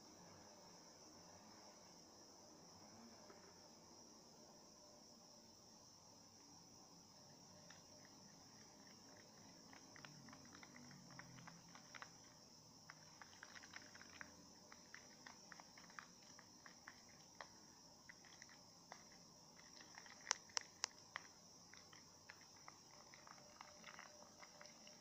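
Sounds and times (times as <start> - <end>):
slime clicks and squishes: 18.1 - 24.9.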